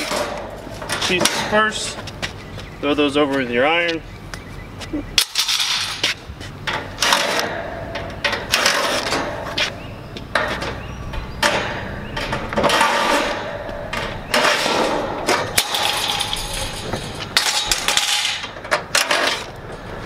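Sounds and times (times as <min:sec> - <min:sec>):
sheet metal panels clanking: 0:00.0 - 0:02.0, 0:05.2 - 0:09.7, 0:10.3 - 0:19.6.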